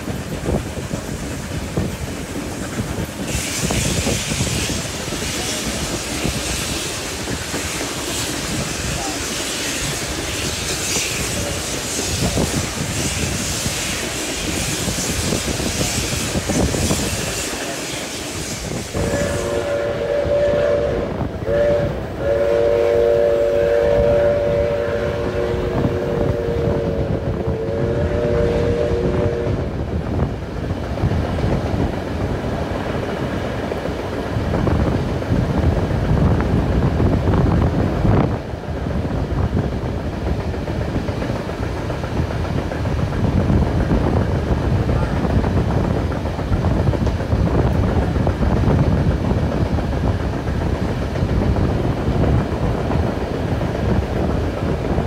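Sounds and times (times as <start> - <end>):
train wheels rumbling on rails: 0.0 - 55.0
steam locomotive chime whistle: 18.9 - 29.6.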